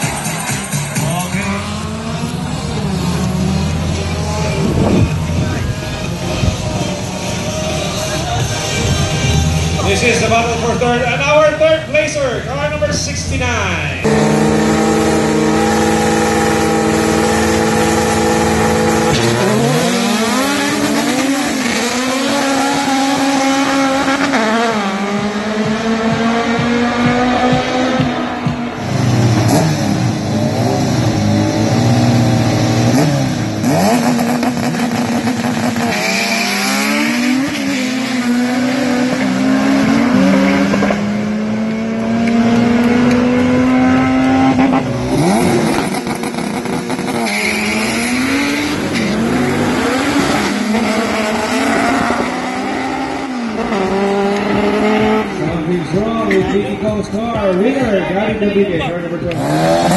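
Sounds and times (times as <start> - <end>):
race car engine revving: 0.0 - 59.9
car accelerating through gears: 14.0 - 56.4, 59.1 - 59.9.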